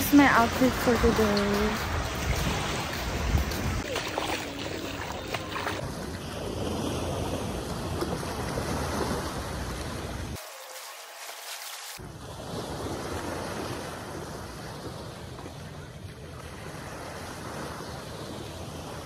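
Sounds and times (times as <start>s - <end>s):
wind buffeting microphone: 0.0s - 4.6s
waves washing up a beach: 0.0s - 19.0s.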